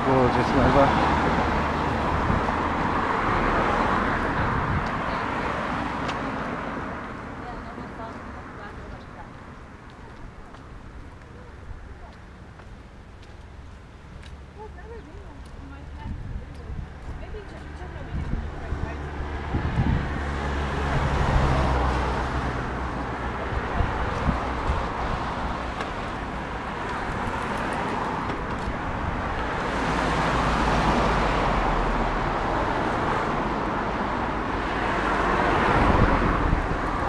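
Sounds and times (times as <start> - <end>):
cars passing on road: 0.0 - 37.0.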